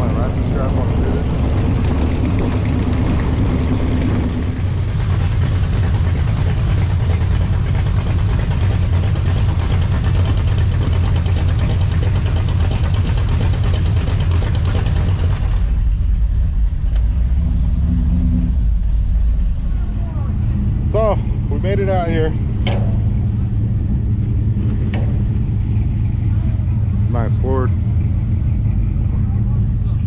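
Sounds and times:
vehicle engine rumbling: 0.0s - 30.0s
rushing noise: 15.3s - 29.0s.

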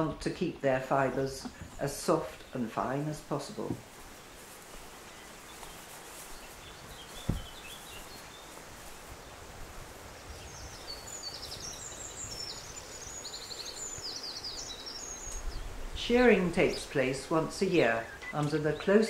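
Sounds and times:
faint steady hiss: 0.0s - 19.0s
songbirds chirping: 0.0s - 19.0s
dull low thump: 7.2s - 7.7s.

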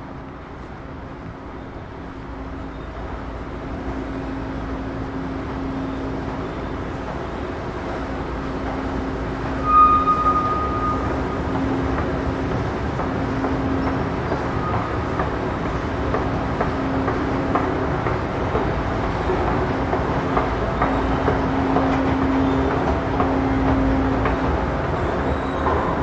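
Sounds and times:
escalator machinery humming: 0.0s - 26.0s
short high squeal: 9.5s - 11.4s.

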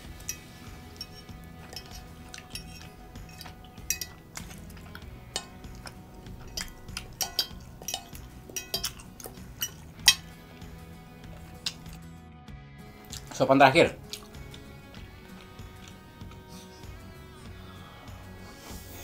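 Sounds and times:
cutlery scraping a plate: 0.3s - 10.3s.

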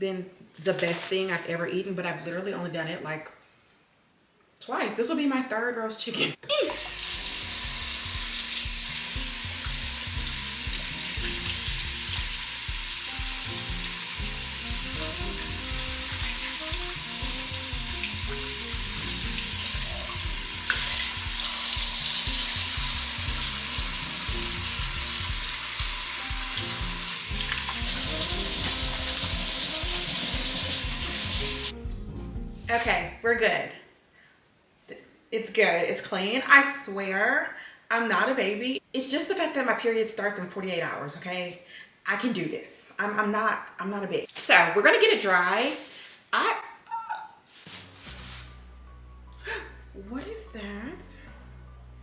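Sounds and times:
background music: 6.6s - 33.4s, 47.7s - 52.0s
tap running into sink: 19.3s - 23.5s.

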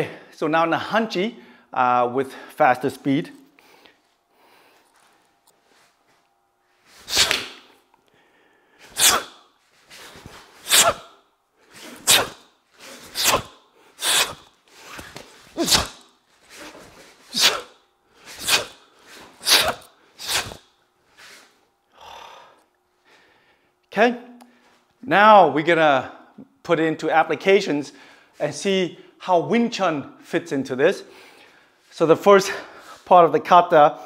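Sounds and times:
sharp hissing exhalations: 7.0s - 20.6s.

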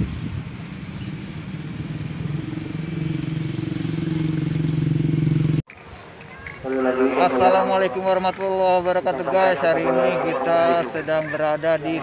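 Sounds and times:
vehicle engine humming: 0.0s - 5.6s.

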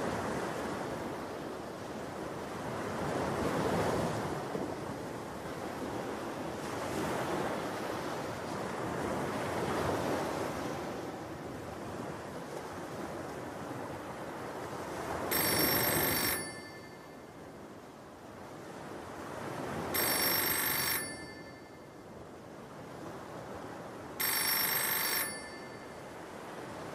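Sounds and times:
waves breaking on a beach: 0.0s - 26.9s
telephone ringing: 15.3s - 17.5s, 19.8s - 22.1s, 24.2s - 26.4s.

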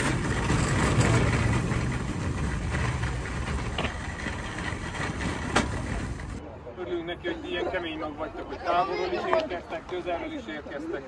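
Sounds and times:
shopping cart rattling on asphalt: 0.0s - 6.4s.

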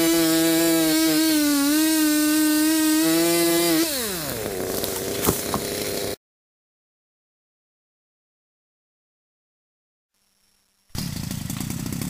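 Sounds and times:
chainsaw engine revving: 0.0s - 6.2s, 11.0s - 12.0s.

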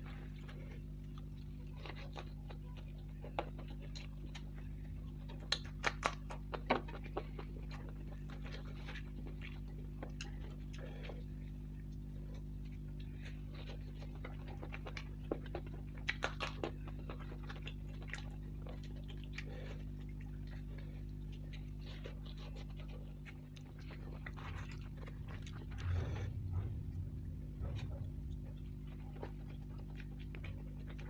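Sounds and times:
person chewing: 0.0s - 31.0s
steady low hum: 0.0s - 31.0s.

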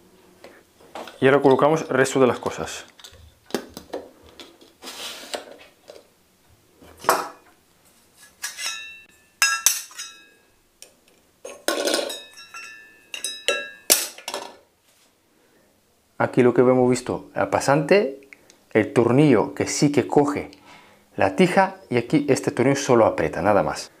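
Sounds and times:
plastic and metal parts clinking: 2.3s - 6.0s.

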